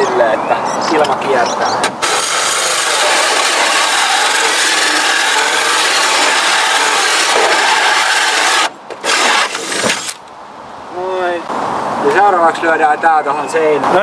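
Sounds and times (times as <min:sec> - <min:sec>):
saw cutting through wood: 0:01.9 - 0:10.2.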